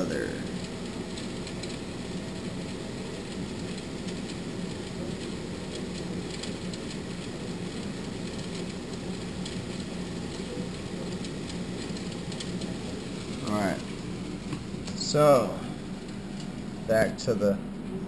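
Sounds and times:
low hum: 0:07.0 - 0:18.0
background hiss: 0:07.2 - 0:18.0.

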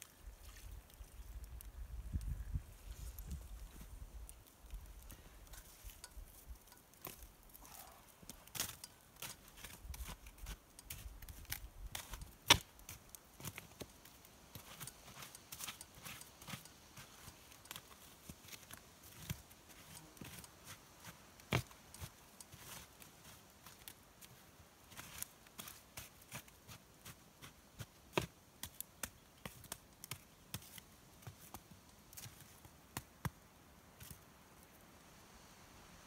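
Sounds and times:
metal camp pot clicks and knocks: 0:04.4 - 0:07.6, 0:08.3 - 0:12.8.

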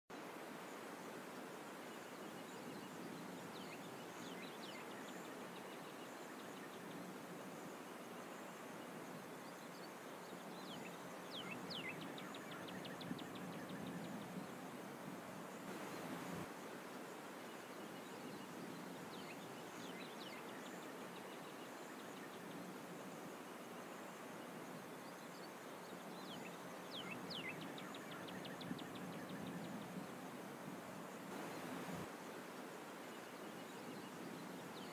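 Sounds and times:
background hiss: 0:00.1 - 0:34.9
faint outdoor background noise: 0:00.1 - 0:34.9
songbird calling: 0:02.0 - 0:14.7, 0:15.5 - 0:22.8, 0:23.4 - 0:30.4.

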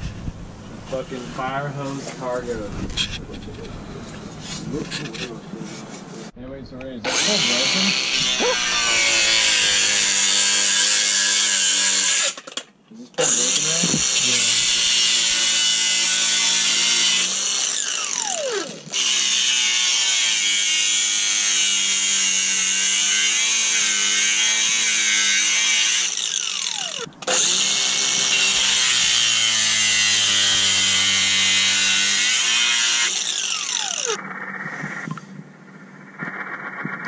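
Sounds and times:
angle grinder cutting metal: 0:07.1 - 0:12.6, 0:13.2 - 0:35.1.

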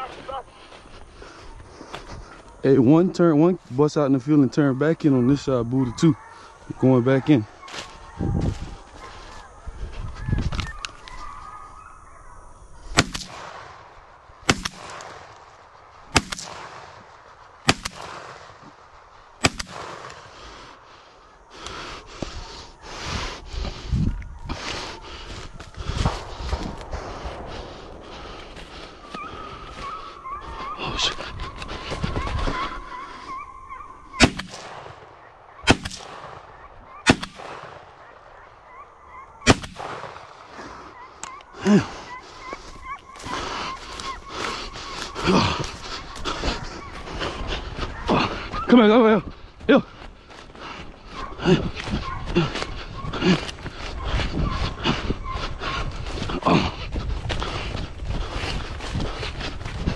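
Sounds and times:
shotgun shots with echo: 0:12.9 - 0:15.4, 0:16.1 - 0:17.0, 0:17.6 - 0:18.6, 0:19.4 - 0:20.2, 0:34.2 - 0:38.0, 0:39.4 - 0:40.4.

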